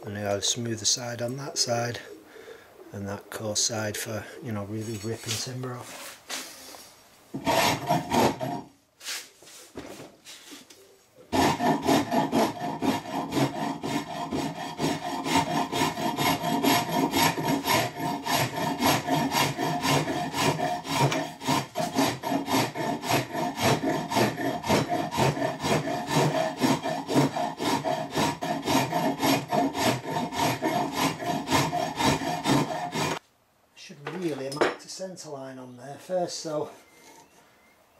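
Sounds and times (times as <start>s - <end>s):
rasp stroking wood: 7.4s - 9.3s, 11.3s - 33.2s.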